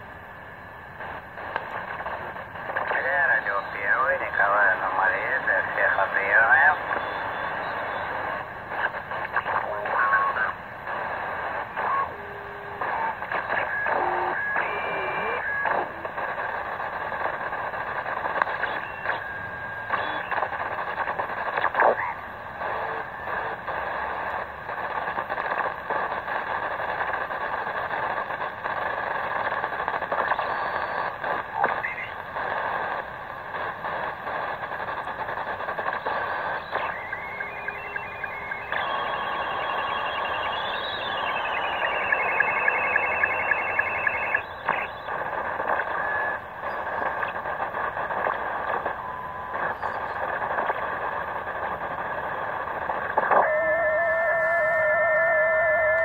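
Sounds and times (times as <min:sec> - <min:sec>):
radio band noise hiss: 0:00.0 - 0:56.0
distorted radio speech: 0:01.0 - 0:56.0
radio tuning whistles: 0:01.0 - 0:56.0.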